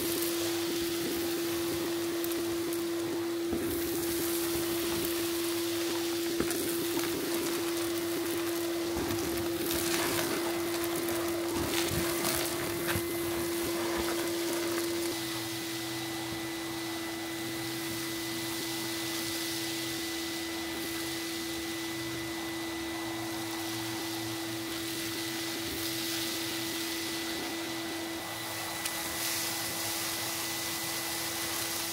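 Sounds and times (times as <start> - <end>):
debris crackling up a pipe: 0.0 - 15.6
vacuum cleaner humming: 0.0 - 31.9.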